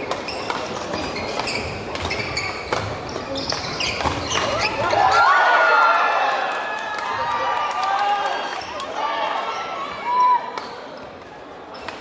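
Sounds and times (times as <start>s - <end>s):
rackets smacking shuttlecock: 0.0s - 4.8s
sneakers squeaking on wooden floor: 0.1s - 5.0s.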